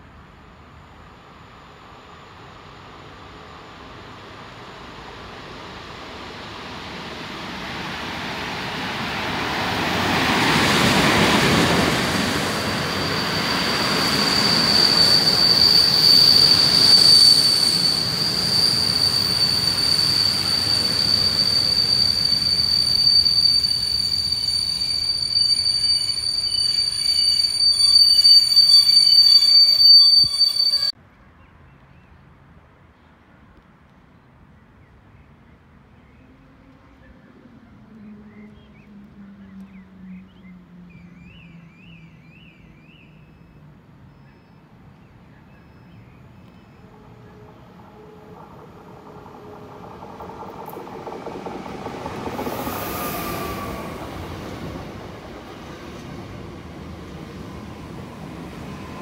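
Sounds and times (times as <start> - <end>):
train passing on rails: 0.0 - 31.0, 36.3 - 59.0
high-pitched squeal of running gear: 10.1 - 31.0, 45.5 - 59.0.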